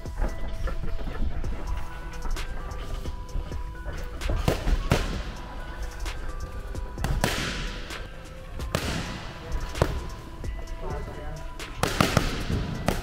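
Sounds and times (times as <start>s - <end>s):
background music: 0.0s - 13.0s
strikes smacking pads: 7.0s - 7.9s, 8.7s - 10.0s.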